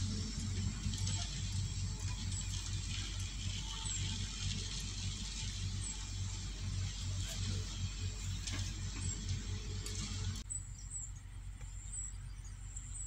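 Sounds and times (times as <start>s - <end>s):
steady hiss: 0.0s - 10.4s
low throbbing rumble: 0.0s - 13.0s.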